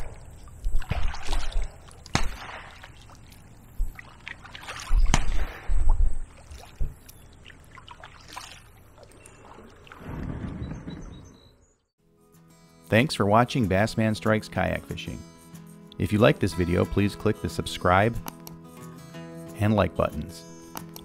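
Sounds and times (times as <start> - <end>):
kayak paddle splashing: 0.0 - 10.6.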